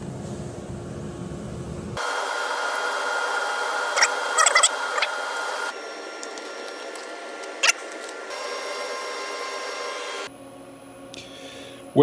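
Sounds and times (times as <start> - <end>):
shop machinery humming: 0.0 - 11.7.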